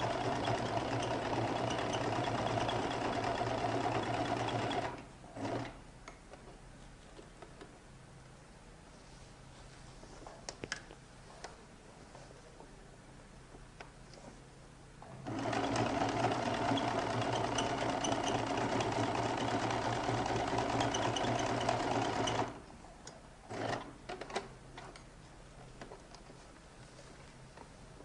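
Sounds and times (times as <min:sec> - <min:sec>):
sewing machine stitching: 0:00.0 - 0:05.8, 0:15.0 - 0:22.6, 0:23.5 - 0:24.4.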